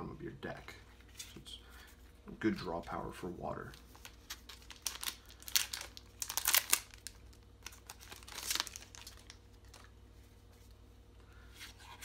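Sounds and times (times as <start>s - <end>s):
card pack wrapper tearing and crinkling: 3.8s - 9.9s.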